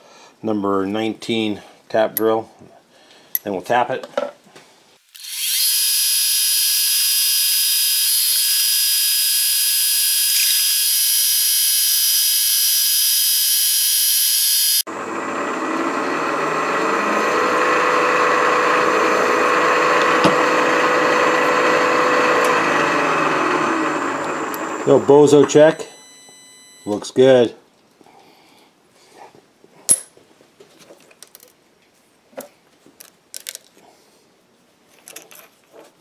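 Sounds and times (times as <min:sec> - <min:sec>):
milling machine whine: 0:05.2 - 0:26.9.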